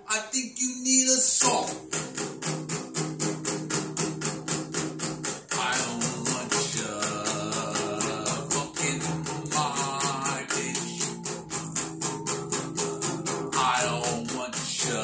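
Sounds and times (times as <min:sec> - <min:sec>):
man singing: 0:00.0 - 0:01.9, 0:05.5 - 0:11.4, 0:13.5 - 0:15.0
acoustic guitar strumming: 0:01.4 - 0:15.0.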